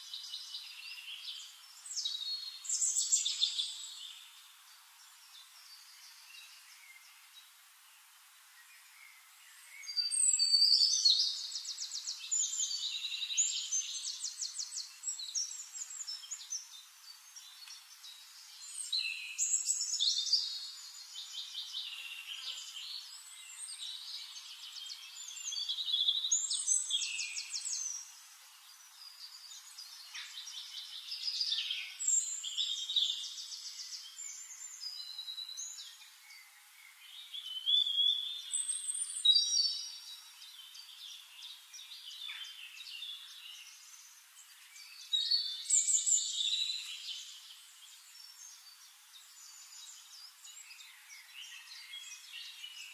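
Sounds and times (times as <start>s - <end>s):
songbird trilling and chirping: 0.0s - 4.4s, 8.8s - 52.9s.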